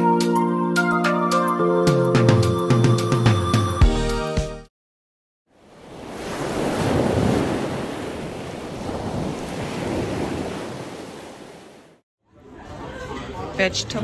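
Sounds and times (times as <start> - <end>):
ocean surf: 5.5 - 12.0.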